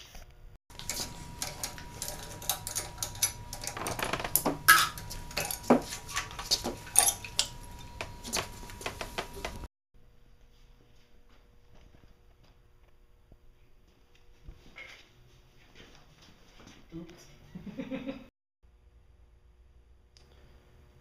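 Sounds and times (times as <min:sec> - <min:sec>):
metal clinks and knocks: 0:00.7 - 0:09.6.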